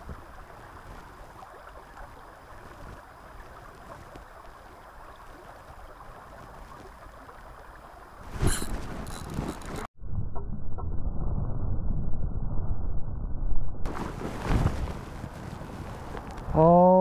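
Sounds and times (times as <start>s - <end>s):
stream running over stones: 0.0s - 9.9s.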